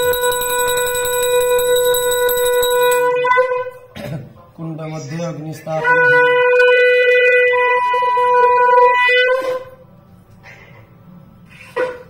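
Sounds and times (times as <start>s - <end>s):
conch shell blown: 0.0s - 3.9s, 5.8s - 9.8s.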